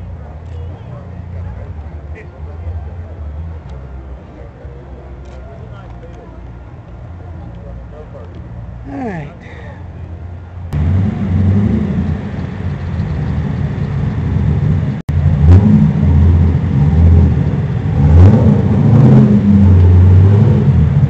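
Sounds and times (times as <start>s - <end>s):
car engine revving: 10.6s - 21.0s.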